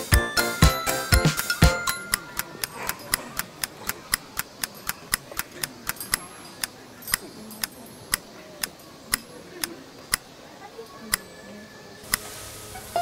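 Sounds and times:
background music: 0:00.0 - 0:02.1
steady ticking: 0:00.0 - 0:10.3.

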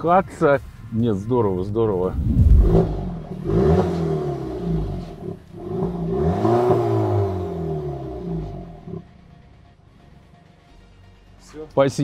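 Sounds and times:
car engine revving: 0:01.6 - 0:09.5.

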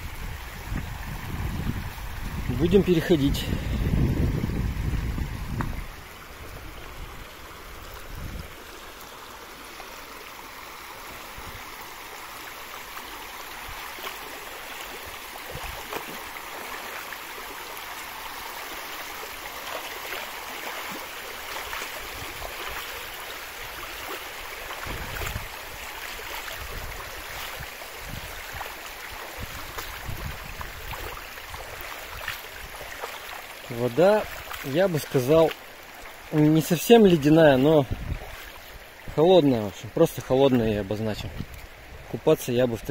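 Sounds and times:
river water rushing: 0:00.0 - 0:42.9
dull low thumps: 0:03.5 - 0:05.9.

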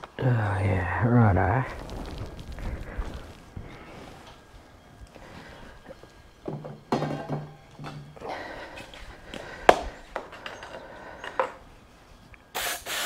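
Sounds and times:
objects knocking and clunking: 0:06.4 - 0:11.6.

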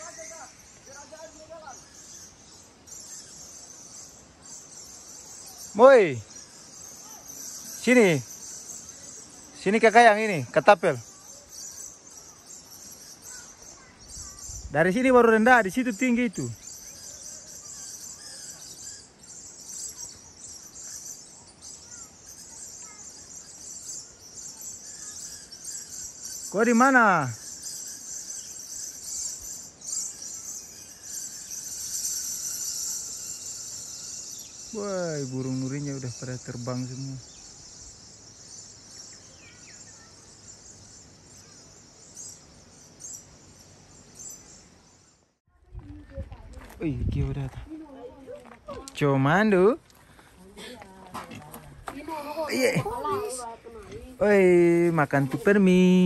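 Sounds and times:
high-pitched insect chorus: 0:00.0 - 0:45.9, 0:46.6 - 0:56.0
faint bird chirps: 0:00.0 - 0:50.9, 0:51.7 - 0:56.0.

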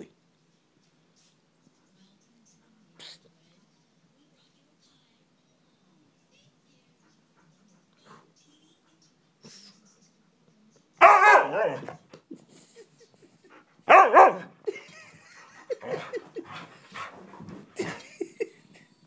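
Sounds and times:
dog howl-barking: 0:11.0 - 0:12.0, 0:13.9 - 0:14.5.

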